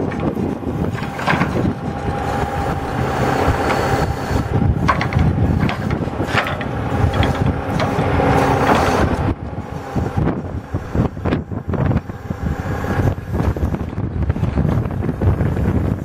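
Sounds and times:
metal clicks and clanks: 0.0s - 1.8s, 4.8s - 9.2s
diesel engine running: 0.0s - 16.0s
hydraulic loader running: 0.0s - 16.0s.

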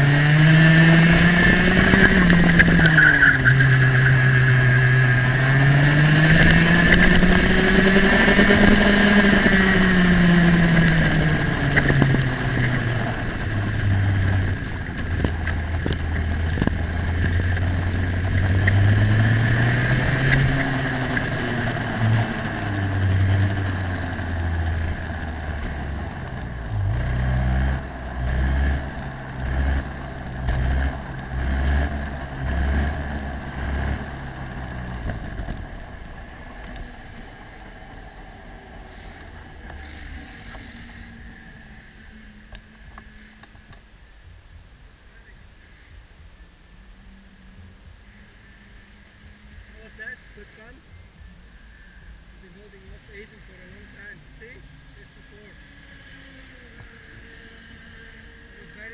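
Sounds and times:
racing kart engine: 0.0s - 58.9s.

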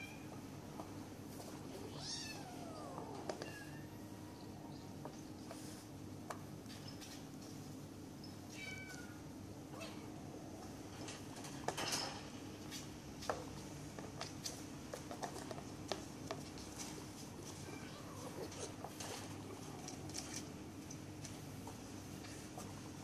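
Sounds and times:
steady low hum: 0.0s - 23.0s
kitten paws scuffling on mat and cage: 4.9s - 7.9s, 10.6s - 23.0s.

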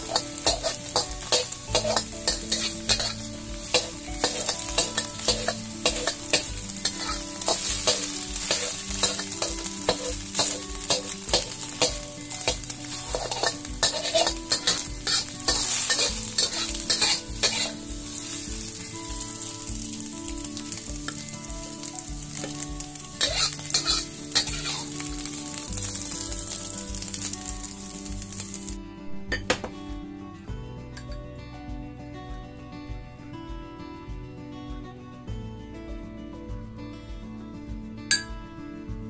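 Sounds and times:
metal spatula scraping a wok: 0.0s - 18.5s, 21.8s - 25.6s
egg sizzling: 0.0s - 28.8s.

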